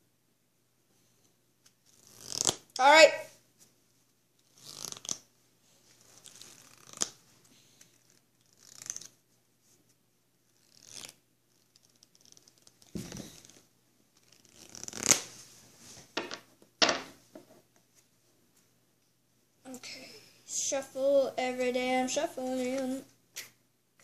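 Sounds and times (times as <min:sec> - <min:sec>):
playing cards shuffling: 0:01.6 - 0:02.7, 0:04.4 - 0:05.2, 0:05.8 - 0:09.2, 0:10.6 - 0:15.4.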